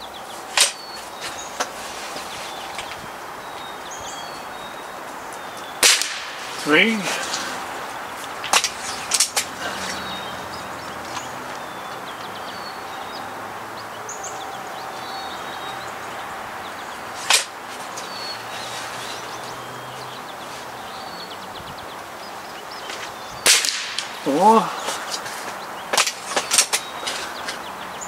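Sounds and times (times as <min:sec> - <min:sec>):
birds chirping faintly: 0:00.0 - 0:28.0
air rifle clacks: 0:05.8 - 0:07.6, 0:17.2 - 0:18.1, 0:23.5 - 0:24.2.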